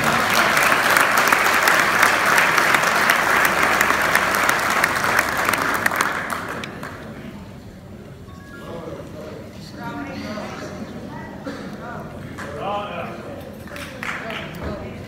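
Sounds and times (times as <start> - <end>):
audience applauding: 0.0 - 7.3, 13.7 - 14.6.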